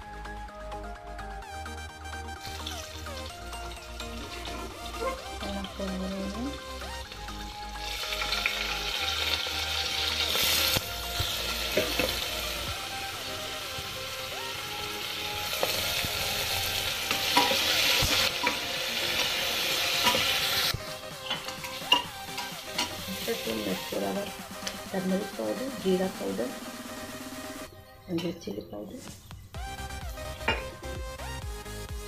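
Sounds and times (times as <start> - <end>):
onions sizzling in oil: 2.4 - 25.9.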